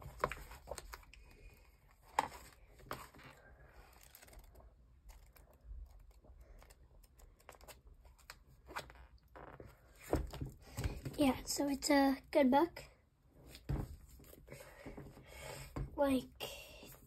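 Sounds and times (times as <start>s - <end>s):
book pages riffling: 0.0s - 9.0s.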